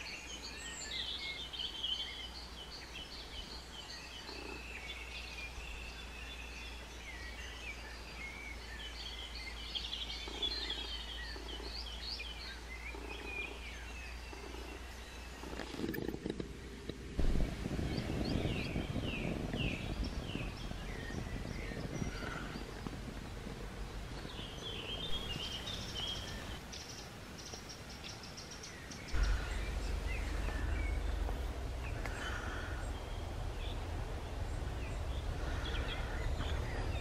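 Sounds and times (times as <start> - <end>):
birds singing and chirping: 0.0 - 37.0
steady low rumble: 16.4 - 27.3, 28.9 - 37.0.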